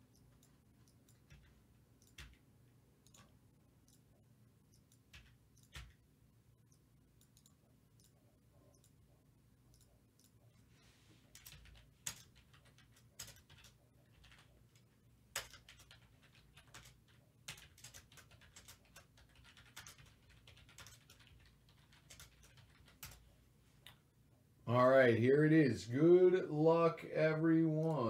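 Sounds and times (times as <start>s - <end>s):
computer keyboard typing: 0.0s - 4.1s, 4.7s - 6.0s, 11.3s - 23.3s.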